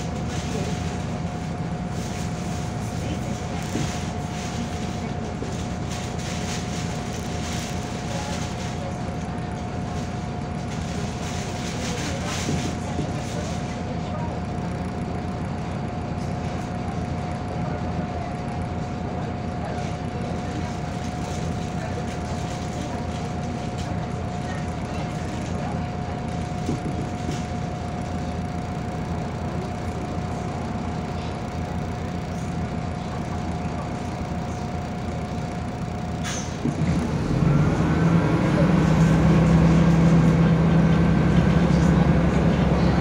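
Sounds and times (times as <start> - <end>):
bus engine and road rumble: 0.0 - 43.0.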